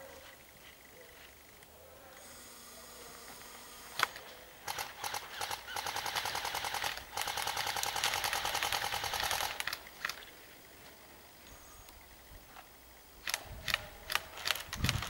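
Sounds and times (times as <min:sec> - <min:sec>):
airsoft gun full-auto bursts: 0:03.9 - 0:10.2, 0:13.2 - 0:15.0.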